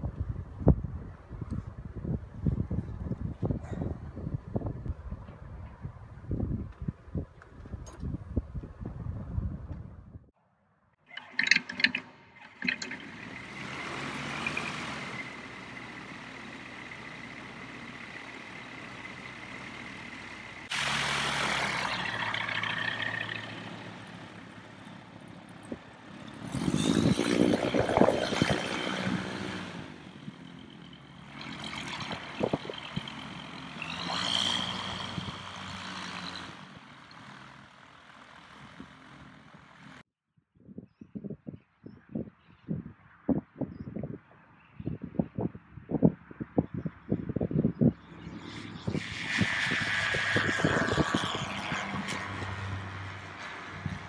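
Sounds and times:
light aircraft engine running: 11.1 - 40.0, 46.8 - 54.0.

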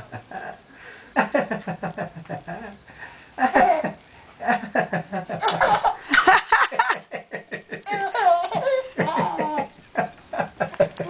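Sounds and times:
baby laughing: 7.8 - 9.8.

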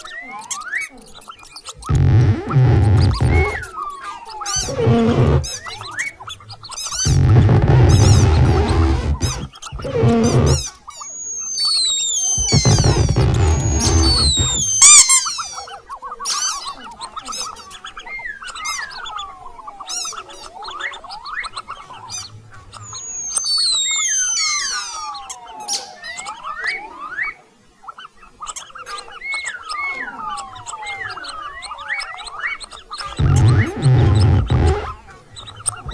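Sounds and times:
mouse squeaks and chirps: 0.0 - 27.3, 27.9 - 35.9.

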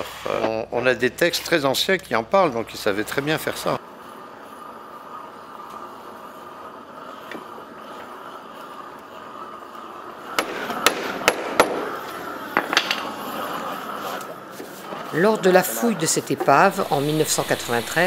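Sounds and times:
gas torch hissing: 2.7 - 18.0
sharp knocks on clamps: 10.4 - 11.8.

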